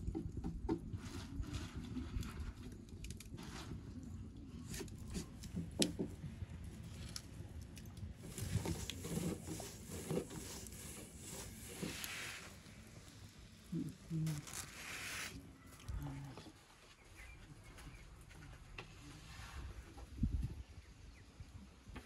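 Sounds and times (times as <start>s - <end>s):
rolling pin rubbing on dough: 8.2s - 13.0s.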